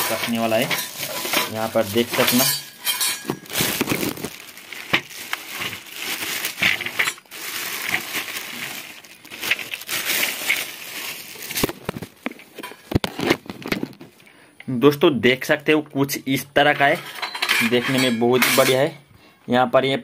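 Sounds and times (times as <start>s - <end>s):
bubble wrap crinkling: 0.0s - 14.2s.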